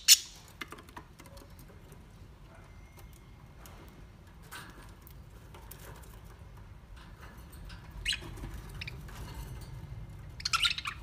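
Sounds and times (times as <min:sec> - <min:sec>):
budgerigars chirping: 0:00.0 - 0:00.4, 0:10.4 - 0:11.0.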